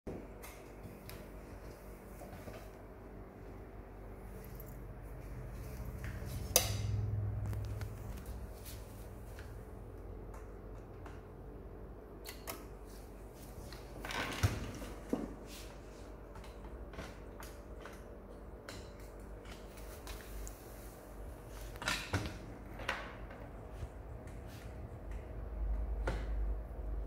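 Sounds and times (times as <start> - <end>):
low steady hum: 0.1 - 27.0
small clicks and knocks of handling: 16.3 - 20.6.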